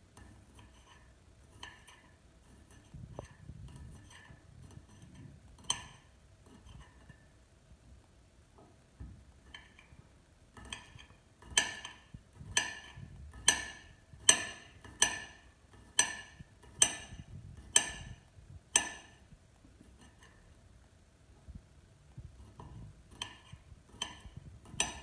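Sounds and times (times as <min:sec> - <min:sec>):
knife clicking on ceramic plate: 0:10.6 - 0:19.2, 0:23.1 - 0:25.0.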